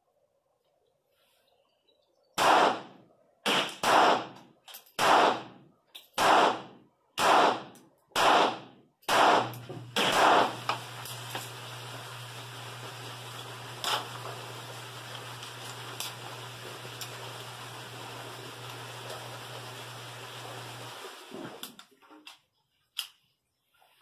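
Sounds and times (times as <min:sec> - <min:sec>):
pistol shots with echo: 0:02.4 - 0:05.6, 0:06.2 - 0:10.6.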